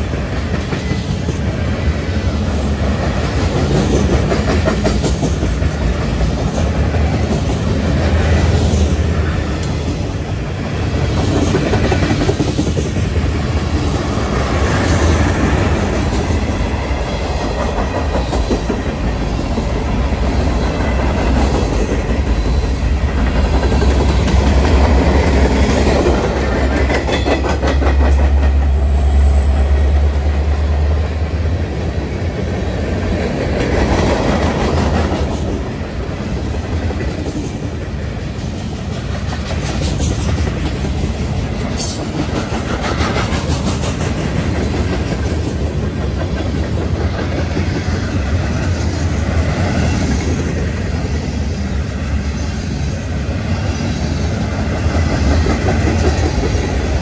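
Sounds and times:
freight train rumbling: 0.0s - 57.0s
wheels clacking over rail joints: 11.0s - 28.8s.

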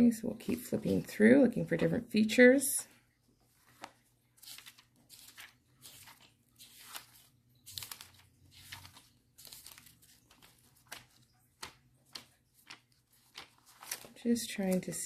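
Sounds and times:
thin book pages rustling: 3.4s - 15.0s.

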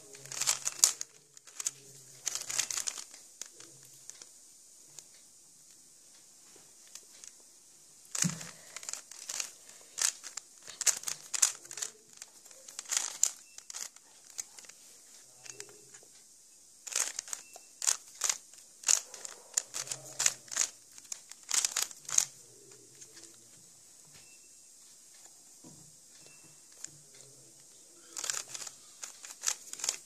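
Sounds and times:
puzzle cube clicking and clacking: 0.0s - 4.3s, 8.1s - 16.0s, 16.8s - 23.4s, 26.7s - 30.0s.

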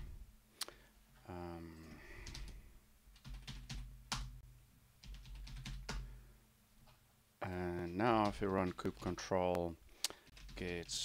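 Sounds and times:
keyboard typing: 3.2s - 4.4s, 5.0s - 6.1s, 7.8s - 9.6s, 10.2s - 11.0s.

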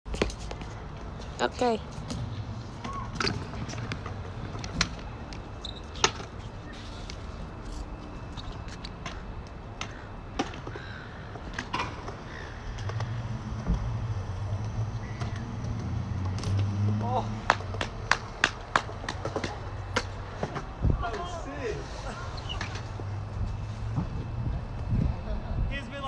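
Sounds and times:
scooter wheels rolling on concrete: 0.1s - 26.0s
bird calls: 15.0s - 15.5s.

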